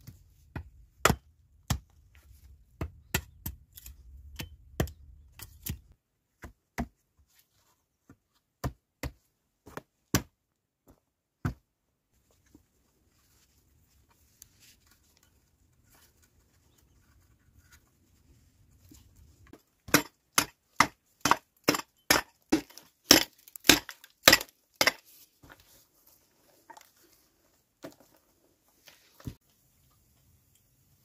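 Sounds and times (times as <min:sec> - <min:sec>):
tool chopping stony ground: 0:00.0 - 0:07.0, 0:08.6 - 0:11.6, 0:19.5 - 0:25.6.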